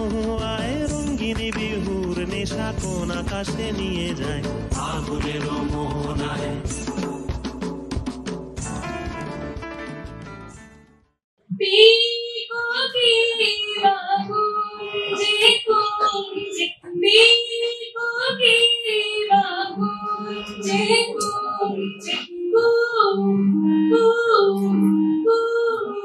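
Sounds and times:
harmonium chords: 19.2s - 25.6s.

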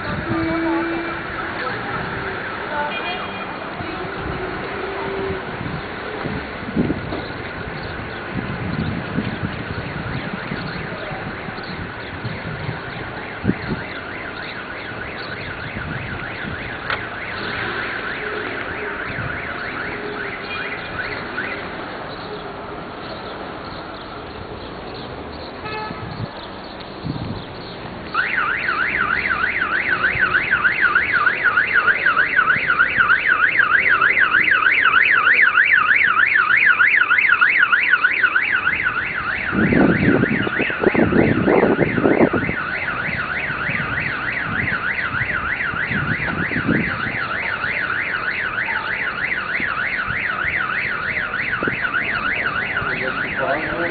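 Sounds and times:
car alarm steady high tone: 7.7s - 22.4s, 28.1s - 53.9s
car alarm warbling tone: 11.6s - 21.8s, 28.1s - 53.9s.

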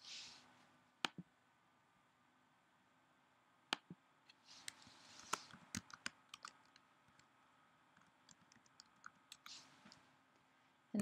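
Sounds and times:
typing on keyboard: 5.3s - 7.3s, 8.0s - 9.6s.

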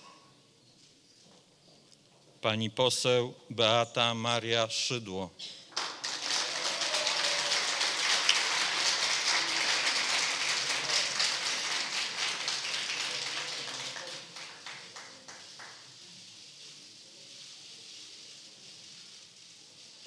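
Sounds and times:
audience applauding: 5.7s - 15.9s.

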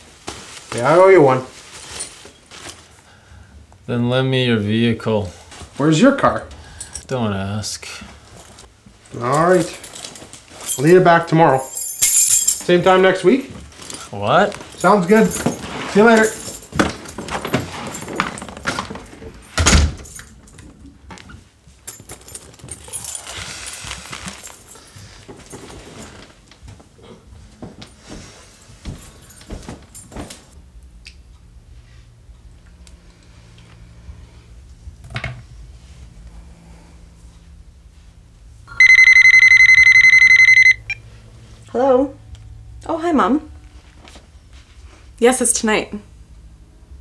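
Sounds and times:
keys jangling: 11.6s - 12.7s, 21.8s - 24.8s
phone ringing with electronic trill: 38.7s - 41.0s.

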